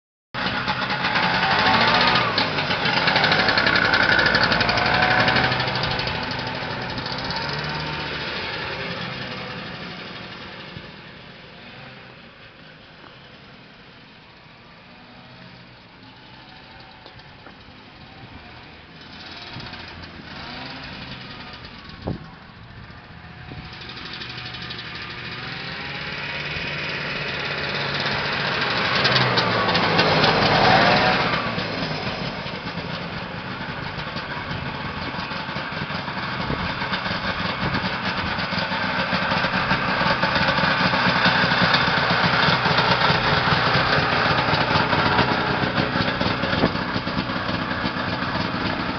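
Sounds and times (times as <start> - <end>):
snowmobile engine passing: 0.5 - 12.2, 18.1 - 35.1.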